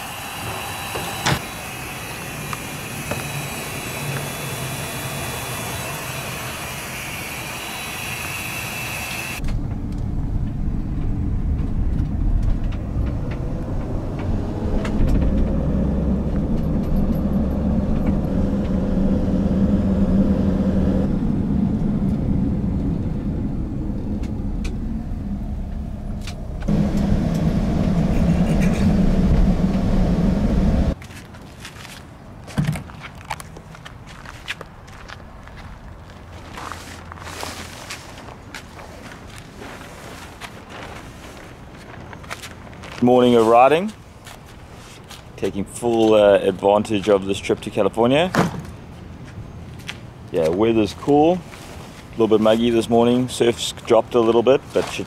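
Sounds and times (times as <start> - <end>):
fuel hissing through nozzle: 0.0 - 9.4
van engine and road noise: 0.0 - 55.0.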